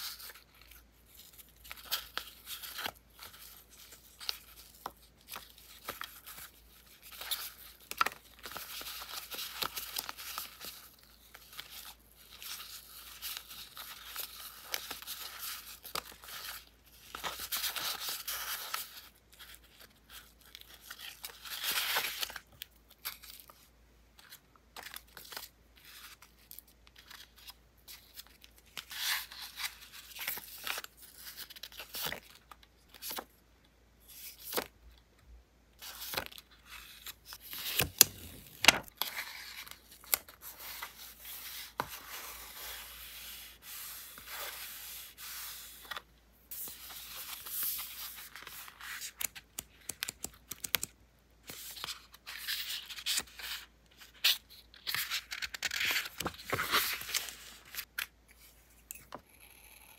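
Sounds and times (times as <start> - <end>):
paper rustling and crinkling: 35.8 - 46.0, 46.6 - 58.0
paper edges flicking and tapping: 37.6 - 38.9.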